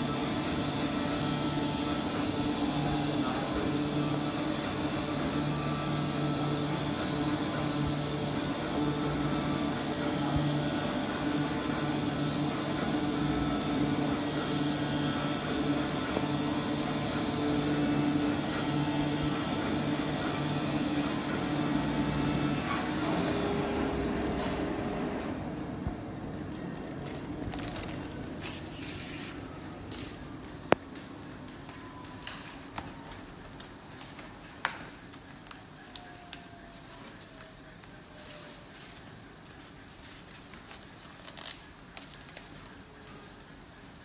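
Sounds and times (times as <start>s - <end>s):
cutting machine whirring: 0.0s - 25.5s
low machine hum: 0.0s - 44.0s.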